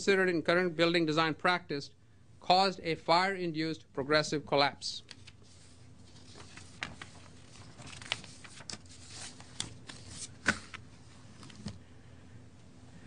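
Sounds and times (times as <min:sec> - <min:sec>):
paper rustling at a microphone: 0:05.1 - 0:11.8.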